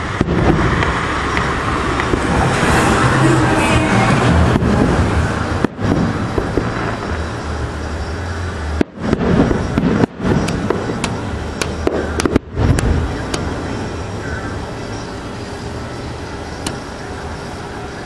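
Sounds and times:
firework cracks: 0.0 - 3.4, 4.5 - 14.0, 16.6 - 17.0
fireworks bangs: 0.0 - 17.6
background noise: 0.0 - 18.0.

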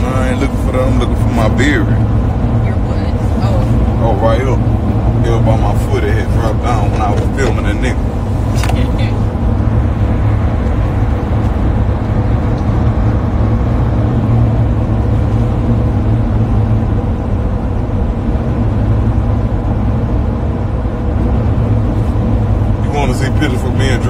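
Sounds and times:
vehicle road noise rumble: 0.0 - 24.0.

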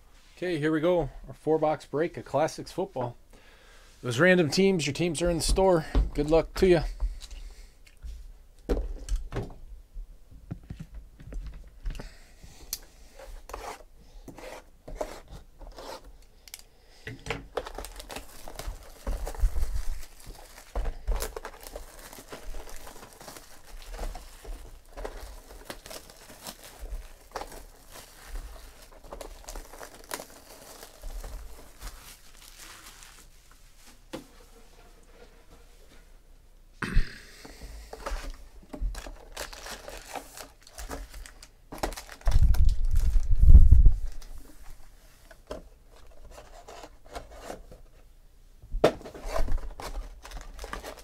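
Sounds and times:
plastic shrink-wrap crinkling: 17.5 - 34.0, 38.9 - 44.4, 49.3 - 51.0.

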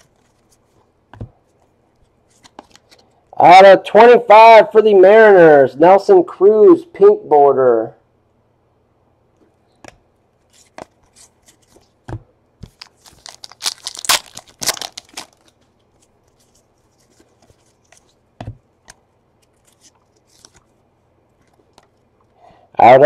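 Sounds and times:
cards clicking and rustling: 12.6 - 18.2, 18.8 - 20.8
foil wrapper tearing and crinkling: 12.7 - 15.6.

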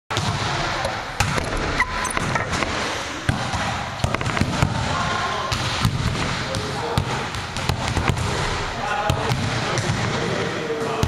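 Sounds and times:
volleyball thuds on gym floor: 2.5 - 8.4.

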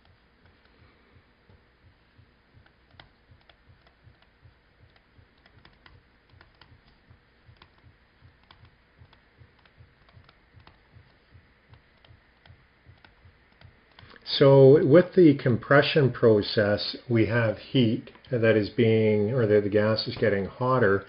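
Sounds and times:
stylus tapping on a tablet: 0.0 - 14.2
faint low pulsing: 0.0 - 16.0.

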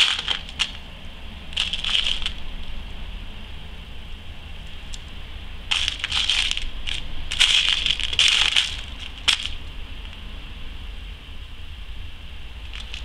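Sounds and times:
beads rattling in plastic tub: 0.0 - 0.8, 1.6 - 2.8, 5.7 - 9.6, 12.7 - 13.0.

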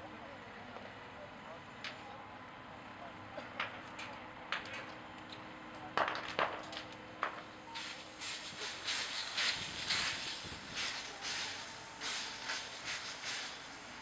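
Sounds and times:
fire cracking: 6.0 - 13.9
steam hissing in bursts: 7.8 - 14.0.

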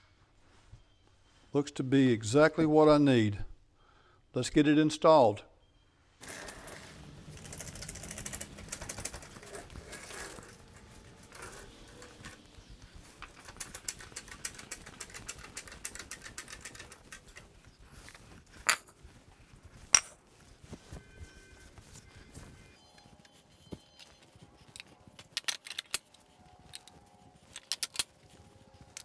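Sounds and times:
light clicking and rattling: 6.2 - 18.8.

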